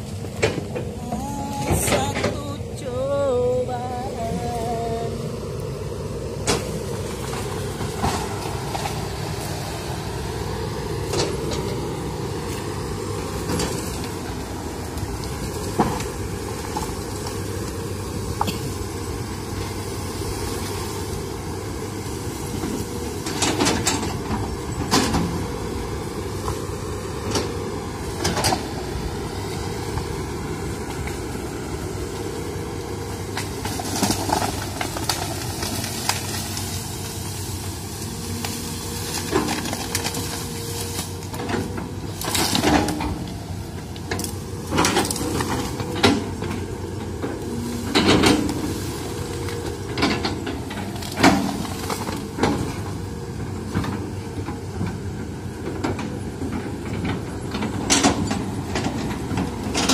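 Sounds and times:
excavator diesel engine running: 0:00.0 - 0:59.9
branches cracking and knocking: 0:33.1 - 0:53.0.

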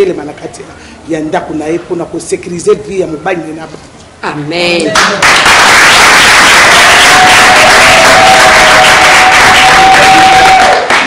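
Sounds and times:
people clapping and cheering: 0:04.8 - 0:11.0.

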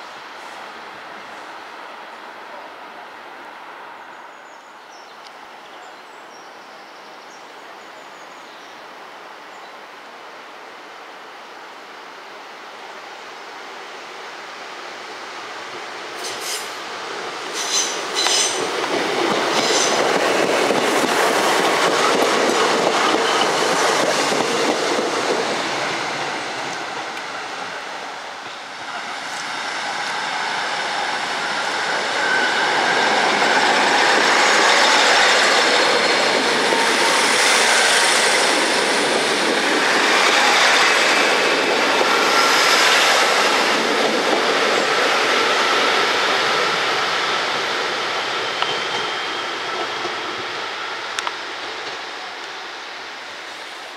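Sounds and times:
train passing rumble: 0:15.5 - 0:53.9
high wheel squeal: 0:17.5 - 0:18.7.

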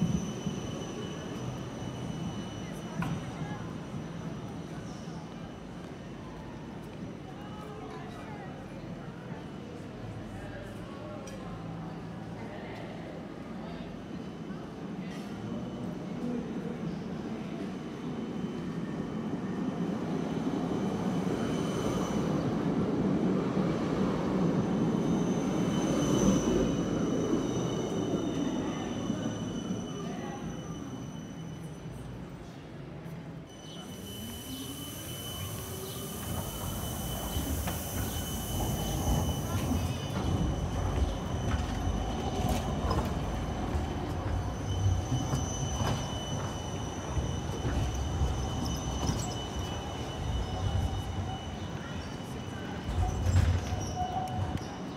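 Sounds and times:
tram rolling rumble: 0:00.0 - 0:54.9.

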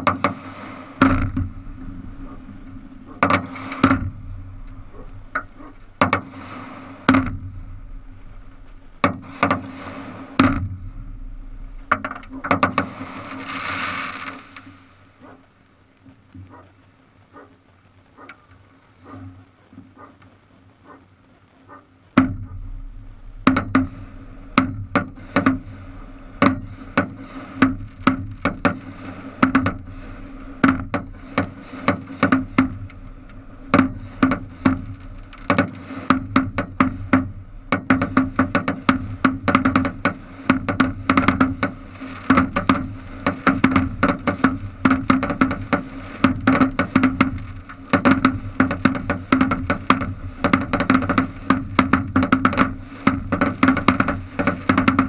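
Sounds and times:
firework cracks and pops: 0:00.0 - 0:55.0
spark fountain hissing: 0:11.0 - 0:55.0.

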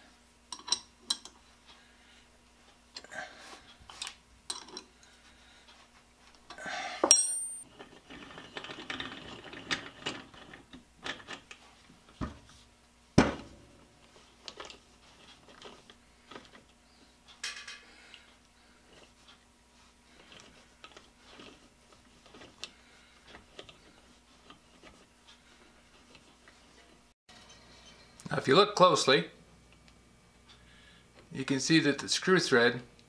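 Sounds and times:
metal tools clinking on chuck: 0:04.5 - 0:04.9, 0:07.0 - 0:07.7.

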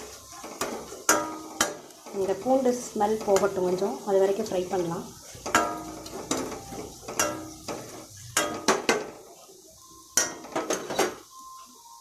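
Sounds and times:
metal ladle scraping a pan: 0:00.0 - 0:09.6
mustard seeds frying: 0:00.0 - 0:12.0.

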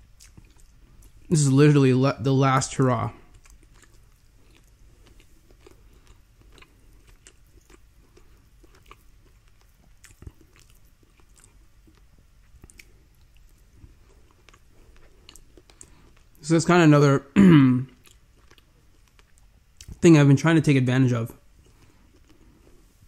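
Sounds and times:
chewing food: 0:00.0 - 0:01.3, 0:03.1 - 0:16.4, 0:17.9 - 0:20.0, 0:21.6 - 0:23.0.

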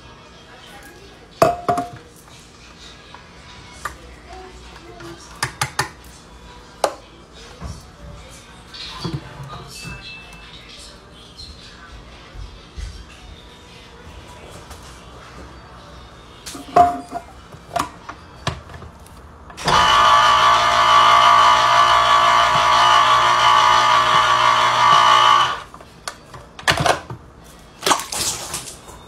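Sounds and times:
electric can opener motor hum: 0:19.6 - 0:25.7.

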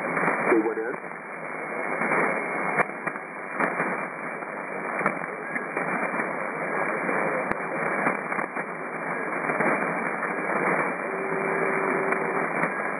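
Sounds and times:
radio static hiss: 0:00.0 - 0:12.9
static crackles: 0:00.0 - 0:12.9
steady radio whistle: 0:08.7 - 0:12.9.

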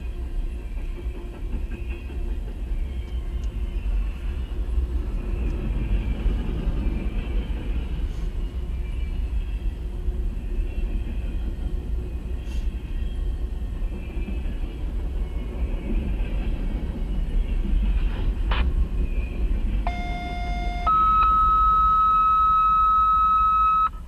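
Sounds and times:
freight train rumbling past: 0:00.0 - 0:21.5
two-tone radio alert: 0:19.9 - 0:24.0.

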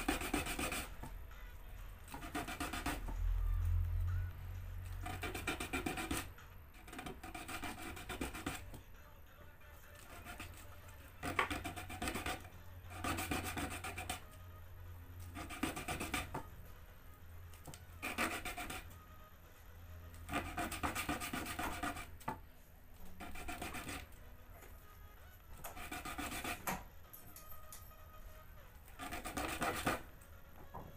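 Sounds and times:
file rasping on plastic: 0:00.0 - 0:01.1, 0:02.1 - 0:03.3, 0:05.0 - 0:08.8, 0:10.0 - 0:14.3, 0:15.2 - 0:16.5, 0:18.0 - 0:19.0, 0:20.2 - 0:22.3, 0:23.0 - 0:24.2, 0:25.6 - 0:26.9, 0:28.9 - 0:30.1.

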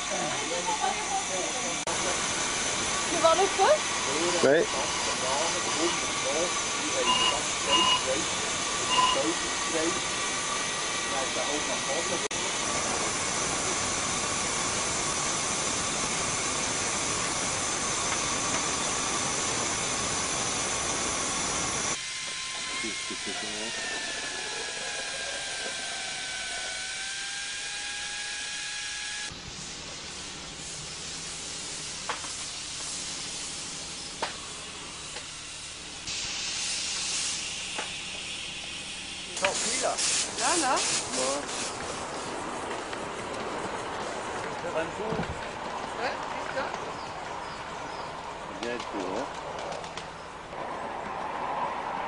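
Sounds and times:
voices: 0:00.0 - 0:02.3, 0:03.1 - 0:10.0, 0:39.3 - 0:50.2
steam hissing: 0:00.0 - 0:47.0.

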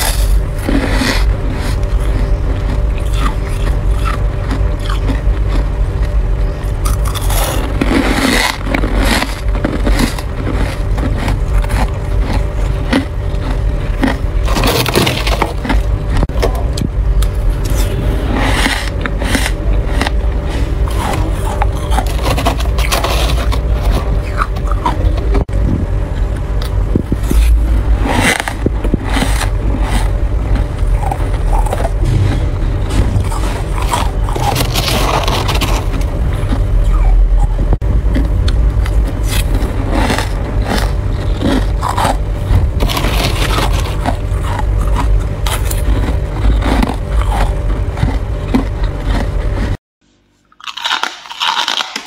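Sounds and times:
frost being scraped: 0:00.0 - 0:03.7, 0:06.9 - 0:15.8, 0:17.6 - 0:25.0, 0:27.1 - 0:36.7, 0:39.1 - 0:47.7
steady low rumble: 0:00.0 - 0:49.8
steady low hum: 0:00.0 - 0:52.0.

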